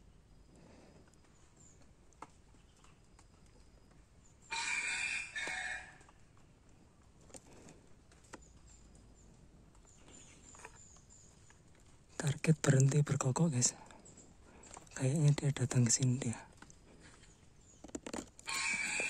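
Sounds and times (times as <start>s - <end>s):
faint small birds chirping: 0.0s - 19.0s
rooster crowing: 4.5s - 6.1s, 18.5s - 19.0s.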